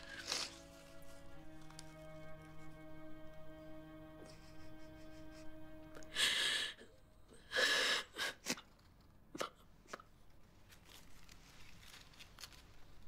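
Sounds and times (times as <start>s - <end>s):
woman crying and sniffing: 4.2s - 6.8s, 7.4s - 8.7s
quiet breathing: 6.0s - 8.6s.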